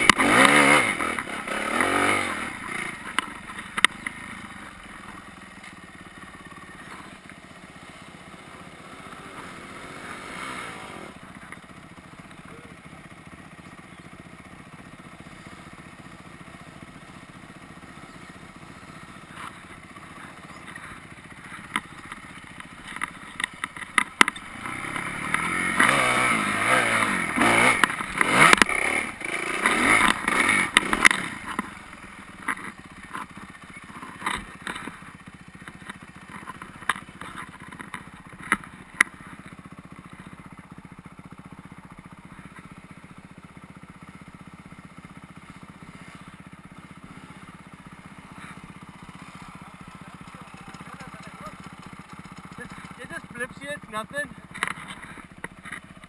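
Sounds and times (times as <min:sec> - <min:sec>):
dirt bike engine revving: 0:00.0 - 0:56.0
bike clattering over rough ground: 0:19.0 - 0:40.4, 0:47.0 - 0:53.4, 0:54.3 - 0:56.0.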